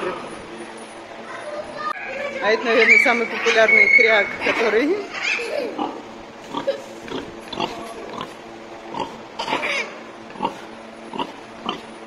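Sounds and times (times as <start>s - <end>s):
boar grunting: 5.8s - 12.0s.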